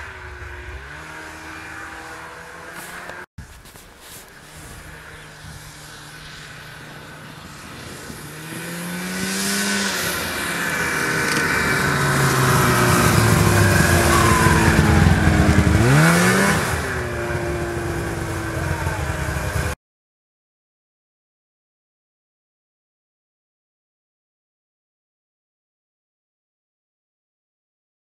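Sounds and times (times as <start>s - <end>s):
snowmobile engine passing by: 0.0s - 19.8s.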